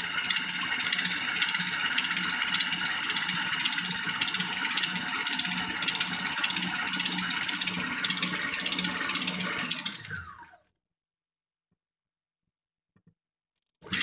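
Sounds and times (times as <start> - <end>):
food processor motor running: 0.0 - 10.6.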